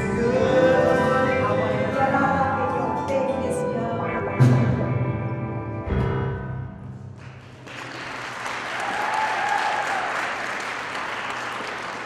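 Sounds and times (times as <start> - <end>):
held music chord: 0.0 - 6.8
audience applauding: 7.2 - 12.0
person cheering: 8.7 - 10.4.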